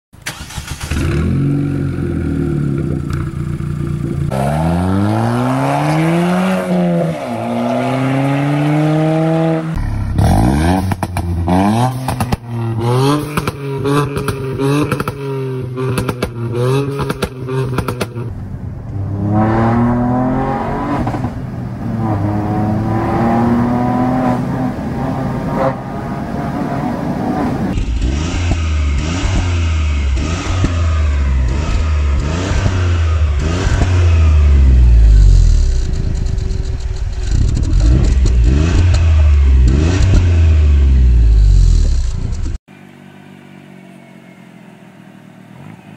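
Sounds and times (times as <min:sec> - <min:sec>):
car engine idling and revving: 0:00.2 - 0:45.9
exhaust pops and crackles: 0:10.2 - 0:12.6, 0:13.2 - 0:15.2, 0:15.9 - 0:19.0, 0:27.8 - 0:32.8, 0:35.0 - 0:40.4, 0:41.5 - 0:42.6
car accelerating through gears: 0:19.0 - 0:35.5.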